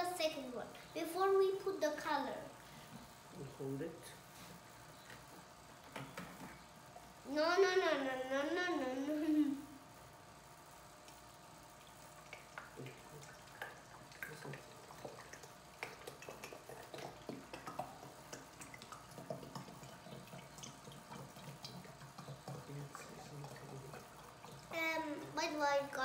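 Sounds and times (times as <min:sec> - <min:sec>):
oil trickling through a funnel: 0:10.8 - 0:26.0.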